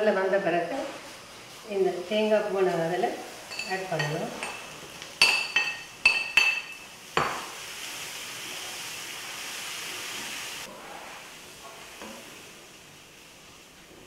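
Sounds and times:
soft sizzle: 0:00.0 - 0:14.0.

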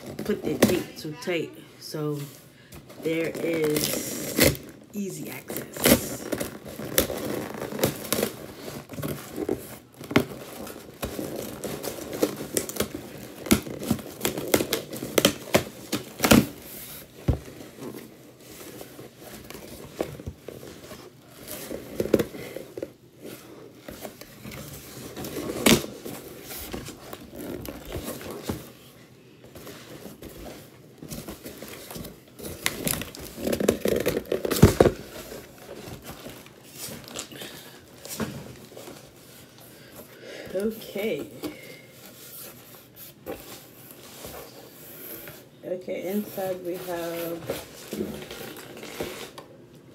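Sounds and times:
cardboard and plastic rustling: 0:00.0 - 0:49.9
packing tape tearing: 0:03.3 - 0:04.8, 0:05.4 - 0:18.1, 0:31.1 - 0:38.7, 0:47.6 - 0:49.5.

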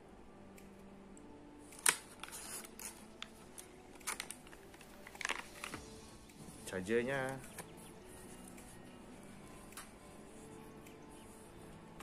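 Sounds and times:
plastic bag crinkling: 0:02.0 - 0:05.9.

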